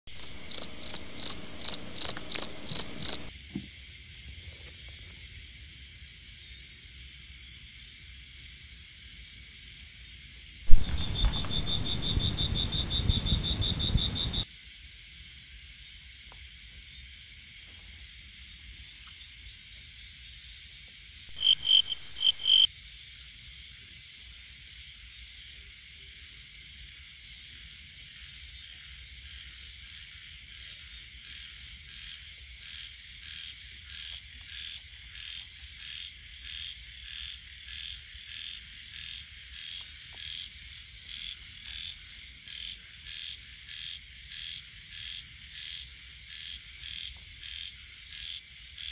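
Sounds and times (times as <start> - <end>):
frogs calling: 0.1 - 3.3, 10.7 - 14.5, 21.3 - 22.7, 27.6 - 48.9
high-pitched insect drone: 0.2 - 3.3, 10.7 - 14.5, 21.3 - 22.7.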